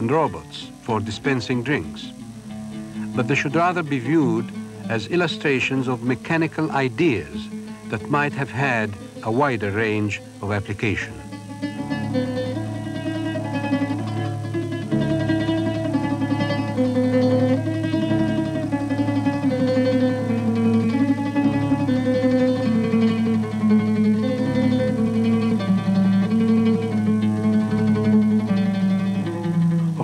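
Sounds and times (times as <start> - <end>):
bass line: 0.0 - 10.6
plucked string melody: 0.0 - 30.0.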